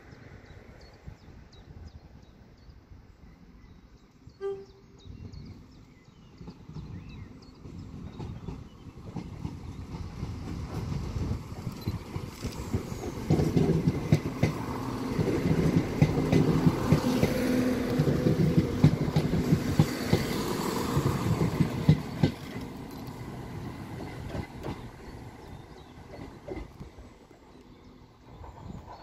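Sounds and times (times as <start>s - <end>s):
train engine drone: 0.0s - 29.0s
wheels clicking over track: 7.6s - 27.1s.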